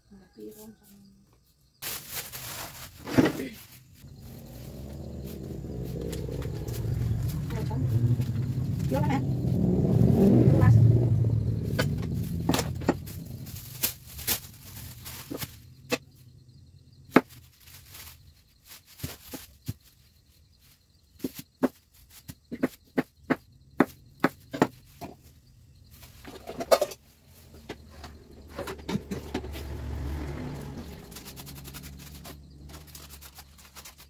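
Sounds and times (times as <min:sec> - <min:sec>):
low rumbling noise: 0:04.0 - 0:15.1.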